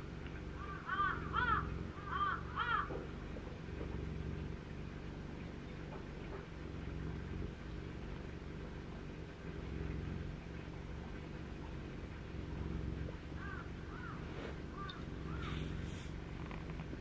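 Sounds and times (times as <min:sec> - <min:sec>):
low steady hum: 0:00.0 - 0:17.0
bird calls: 0:00.6 - 0:03.0, 0:13.4 - 0:16.1.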